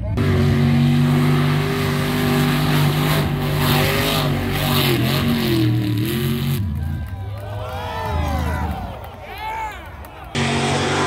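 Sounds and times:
truck engine revving hard: 0.0s - 7.0s, 10.4s - 11.0s.

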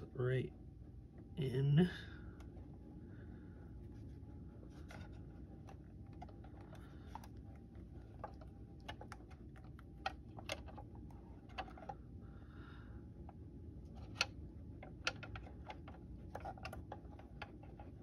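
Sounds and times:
faint low hum: 0.0s - 18.0s
plastic parts clicking and tapping: 4.9s - 12.0s, 13.3s - 18.0s.

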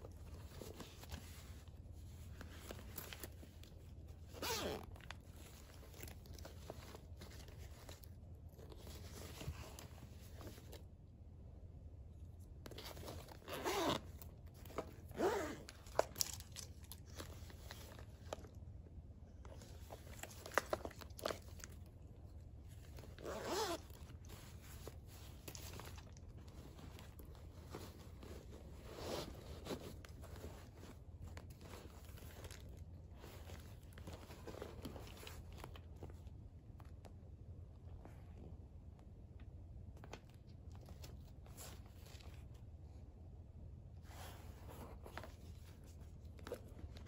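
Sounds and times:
plastic pouches crinkling: 14.5s - 18.6s, 19.5s - 22.1s.

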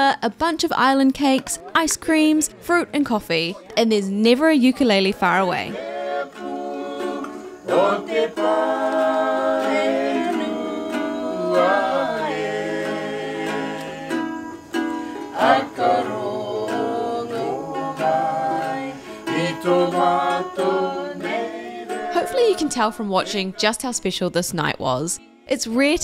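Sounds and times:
ukulele strumming: 5.2s - 23.7s
person singing: 5.7s - 23.6s.

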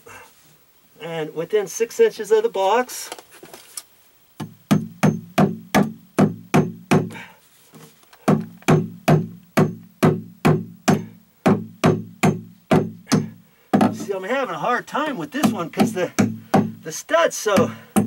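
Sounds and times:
hammer knocking on wood: 4.4s - 7.2s, 8.2s - 14.1s, 15.4s - 16.8s.

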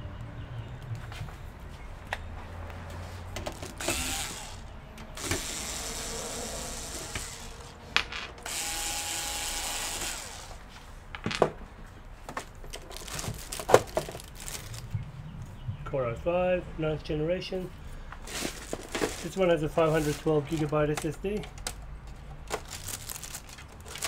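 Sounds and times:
electric screwdriver whirring: 3.8s - 7.8s, 8.4s - 10.6s.

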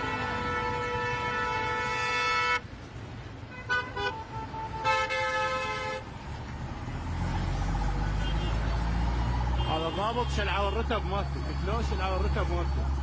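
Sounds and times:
car horns honking: 0.0s - 2.8s, 3.4s - 6.1s, 8.1s - 8.8s, 9.5s - 11.0s.

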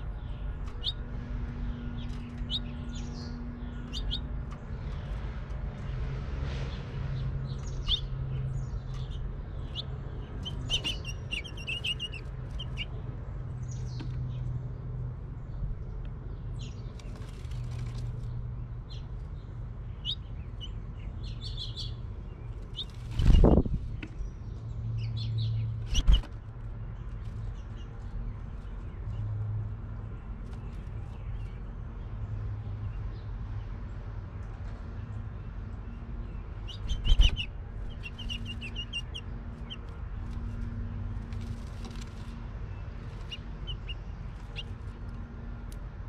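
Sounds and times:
finches chirping: 1.7s - 4.3s, 7.5s - 13.0s, 35.9s - 41.0s, 42.9s - 45.0s.

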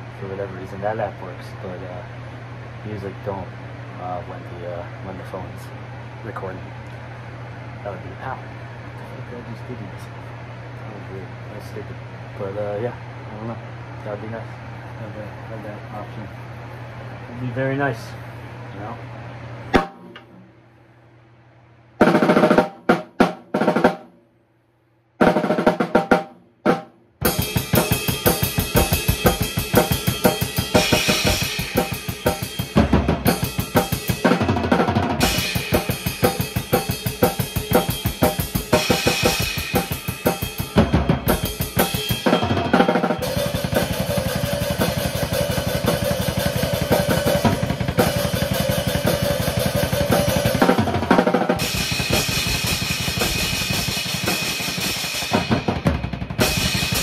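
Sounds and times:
drum kit playing: 19.7s - 20.3s, 22.0s - 24.2s, 25.2s - 57.0s.

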